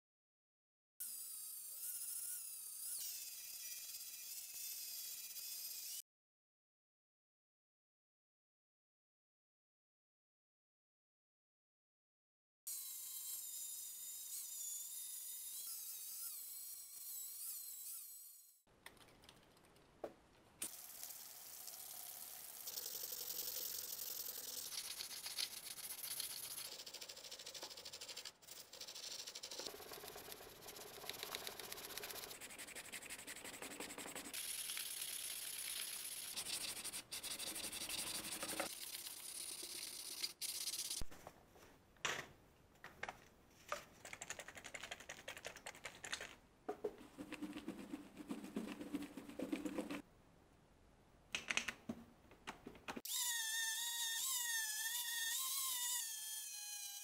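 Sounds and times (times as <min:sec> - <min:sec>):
hand sanding with sandpaper: 0:24.3 - 0:34.4, 0:35.5 - 0:41.0, 0:47.0 - 0:50.0
sandpaper sheets rustling: 0:47.1 - 0:50.0.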